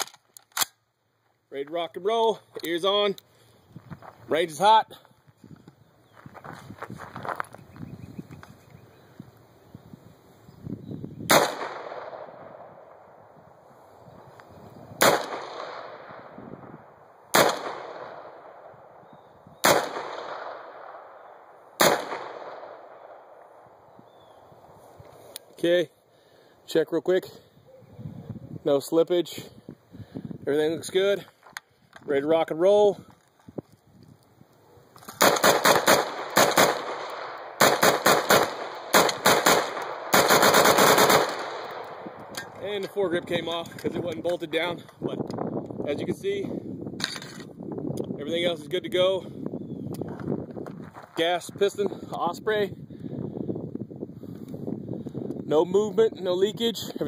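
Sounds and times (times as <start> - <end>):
rifle gunshots with echo: 11.3 - 13.2, 15.0 - 19.0, 19.6 - 23.6, 35.2 - 42.3.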